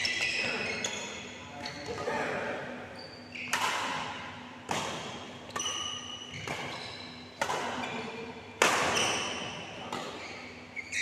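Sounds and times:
rackets striking shuttlecock: 3.5 - 10.3.

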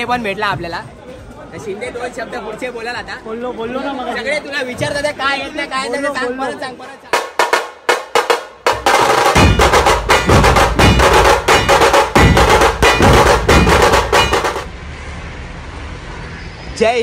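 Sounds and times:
deep drum beats: 7.1 - 14.7.

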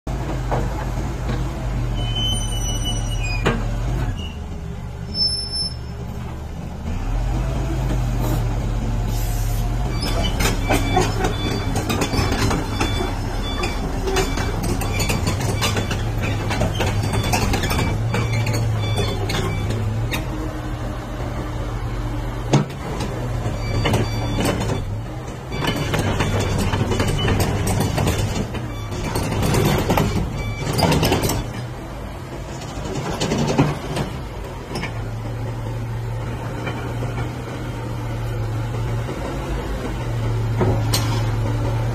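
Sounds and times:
clanks and knocks of tracks: 0.1 - 5.0, 9.7 - 41.9
excavator diesel engine running: 0.1 - 41.9.

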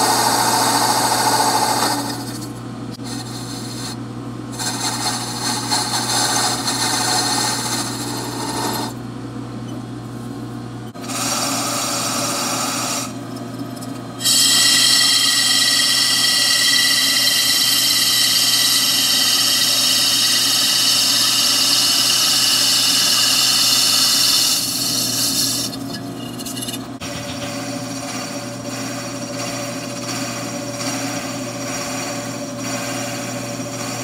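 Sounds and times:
lathe spindle humming: 0.0 - 4.0, 4.6 - 9.0, 10.9 - 34.0
lathe tool cutting metal: 4.6 - 9.0, 11.0 - 13.2, 13.8 - 34.0.

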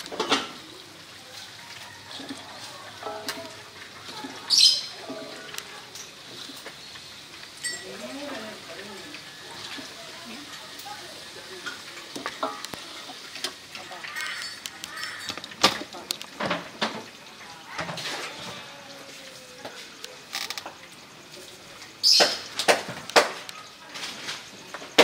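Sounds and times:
bowls and utensils clinking: 0.0 - 10.6, 11.6 - 17.1
faint voices: 0.0 - 22.0.

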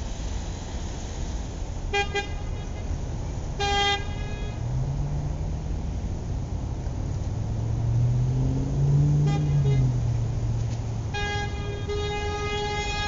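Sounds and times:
low engine hum: 0.0 - 13.0
long horn toot: 1.9 - 3.0, 3.6 - 4.9, 8.5 - 13.0
car horn beeps: 9.2 - 10.1, 11.1 - 13.0.

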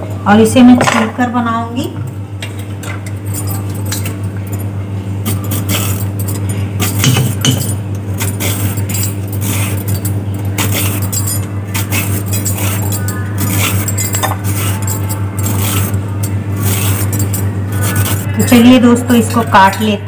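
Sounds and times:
steady low hum: 0.0 - 20.0
bangles clinking: 3.2 - 4.6, 5.3 - 18.3
vegetable peeler scraping zucchini: 11.7 - 16.0, 16.6 - 18.3.

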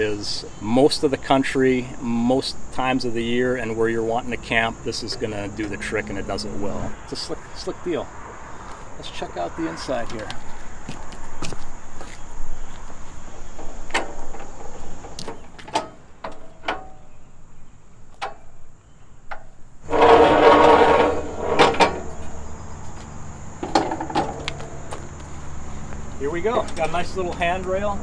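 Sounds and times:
footsteps: 8.6 - 9.0, 10.1 - 15.7, 19.9 - 27.8
metal steps clunking: 11.0 - 17.1, 19.3 - 25.4
metal steps rattling clatter: 23.6 - 25.2.

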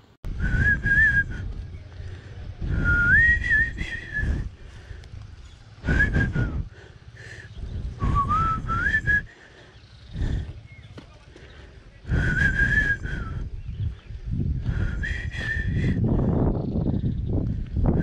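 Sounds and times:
breath noise on microphone: 0.3 - 18.0
person whistling: 0.4 - 1.6, 2.7 - 4.5, 5.8 - 6.6, 8.0 - 9.3, 12.1 - 13.5, 14.7 - 16.1.

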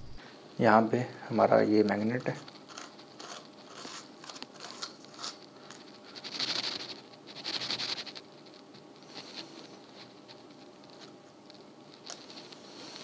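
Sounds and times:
pen scraping over paper: 2.1 - 11.0.

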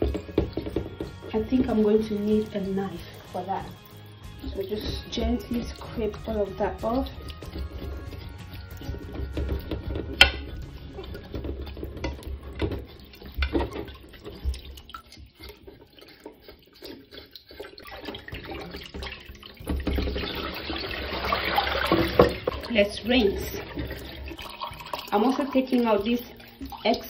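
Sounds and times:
knocks in a bowl: 0.0 - 1.8
tap water running into sink: 0.0 - 27.0
water splashing in bowl: 0.0 - 27.0.

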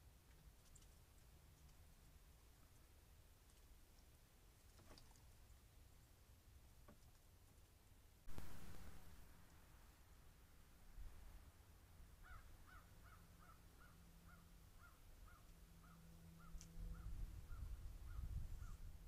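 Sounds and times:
faint animal call: 12.2 - 18.9.

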